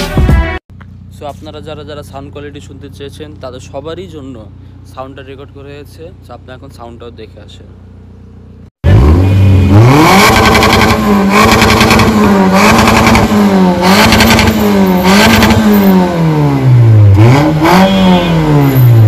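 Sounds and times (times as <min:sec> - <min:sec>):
car engine revving: 0:07.8 - 0:19.0.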